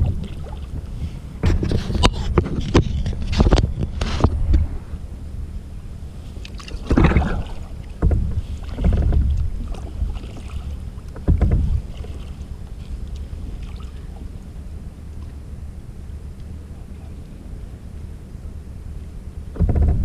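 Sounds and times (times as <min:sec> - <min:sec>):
paddle splashing in water: 0:00.0 - 0:02.6, 0:06.3 - 0:14.4
low wind rumble on microphone: 0:00.0 - 0:20.0.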